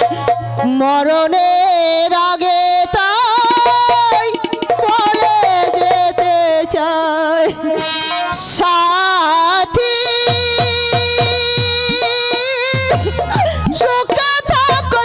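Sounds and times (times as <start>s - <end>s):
instrumental accompaniment: 0.0s - 15.0s
fast hand drum strokes: 3.1s - 6.7s, 9.8s - 15.0s.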